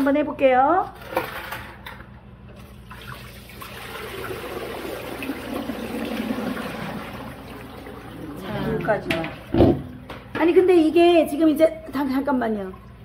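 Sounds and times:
water pouring into a container: 2.8s - 8.5s.

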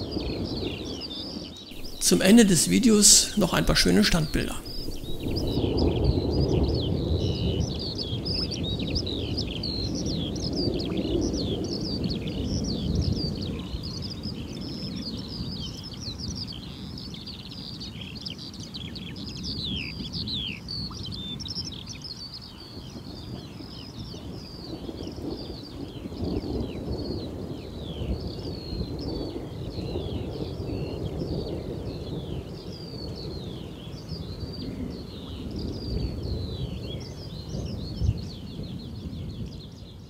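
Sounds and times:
birds chirping: 1.7s - 5.9s.

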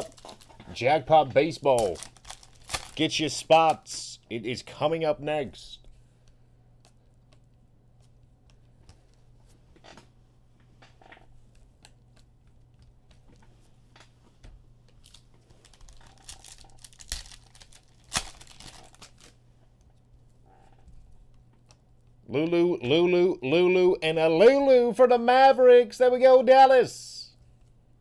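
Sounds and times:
card wrappers tearing and crinkling: 0.0s - 0.9s, 1.6s - 3.9s, 15.0s - 19.4s.

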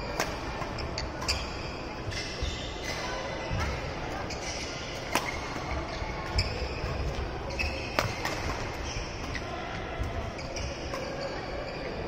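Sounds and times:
racket hitting shuttlecock: 5.0s - 6.4s, 7.9s - 9.4s.

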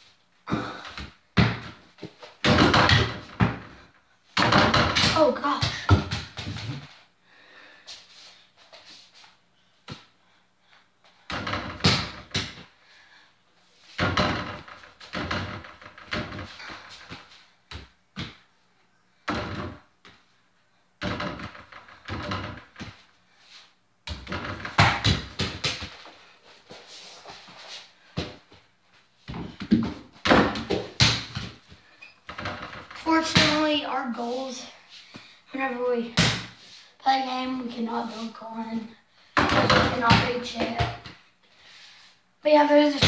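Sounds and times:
ball bouncing on floor: 0.5s - 3.7s, 4.4s - 6.9s, 11.3s - 12.6s, 24.1s - 26.0s, 29.3s - 31.6s, 32.4s - 33.7s, 39.4s - 41.2s.

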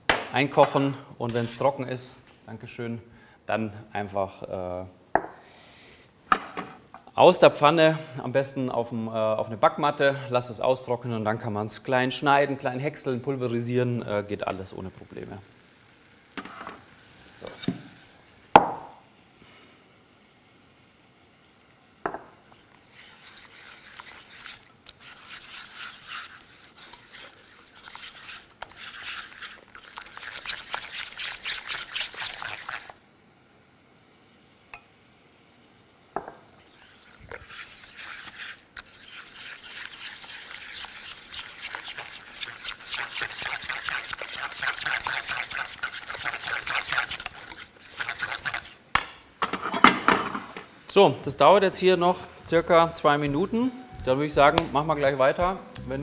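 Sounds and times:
pecans sizzling in syrup: 4.0s - 33.2s, 34.2s - 56.0s.

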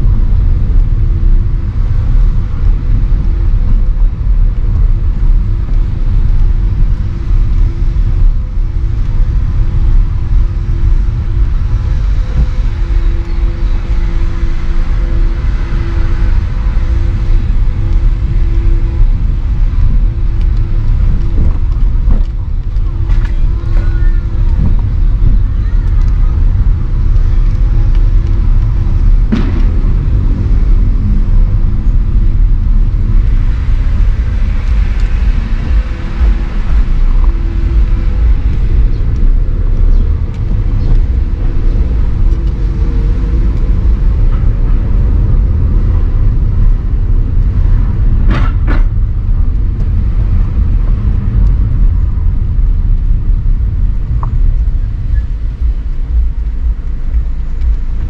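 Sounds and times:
car engine and road rumble: 0.0s - 58.0s.

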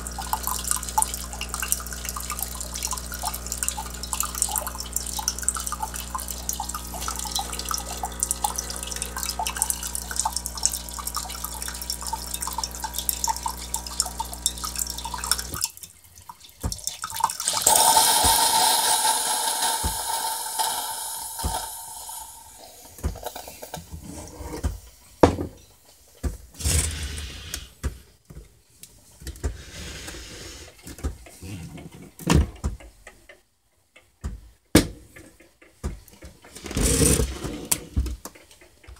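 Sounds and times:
coffee machine pump humming: 0.0s - 15.7s, 16.6s - 24.8s
water streaming into mug: 0.0s - 23.8s
steam hissing: 17.4s - 23.8s.

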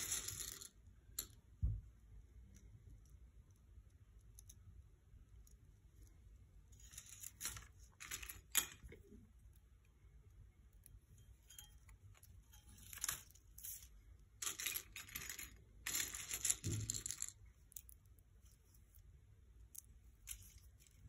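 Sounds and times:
wire and paper rustling: 20.1s - 21.0s.

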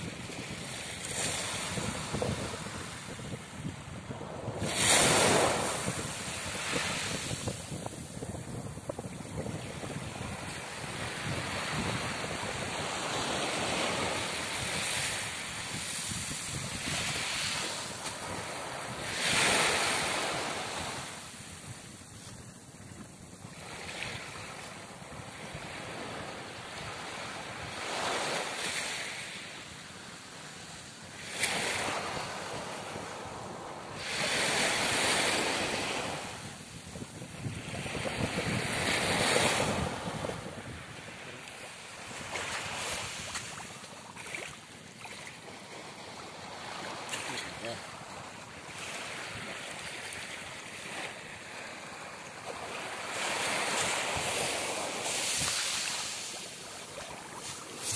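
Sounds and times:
wind buffeting microphone: 0.0s - 28.0s, 34.0s - 44.6s
waves washing onto gravel beach: 53.3s - 57.9s.

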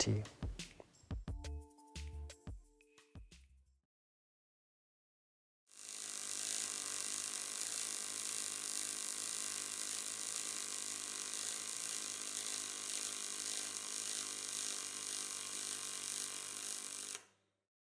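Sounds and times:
welding arc buzzing: 5.7s - 17.3s.

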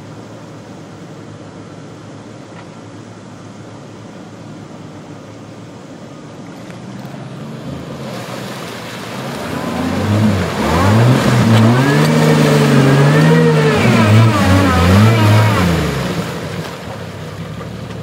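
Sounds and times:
water and mud splashing: 6.2s - 18.0s
car engine revving: 6.8s - 18.0s.

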